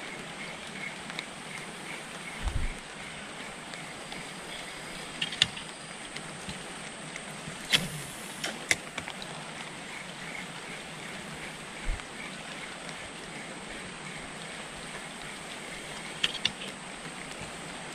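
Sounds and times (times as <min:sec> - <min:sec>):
low thump: 0:02.4 - 0:02.8
sharp clicks and knocks: 0:05.1 - 0:06.6, 0:16.2 - 0:16.7.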